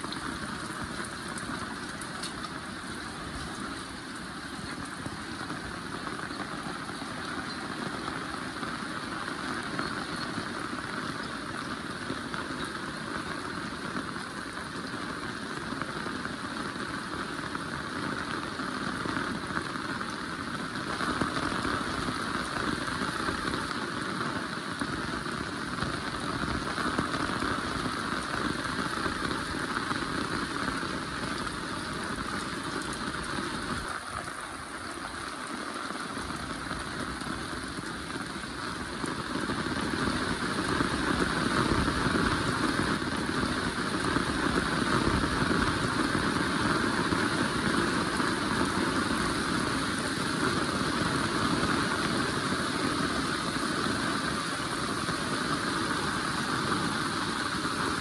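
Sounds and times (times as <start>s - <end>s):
heavy rain: 0.0s - 58.0s.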